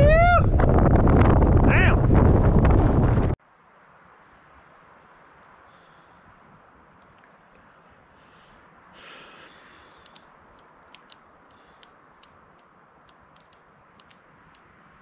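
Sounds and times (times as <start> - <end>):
wind rushing: 0.0 - 3.4.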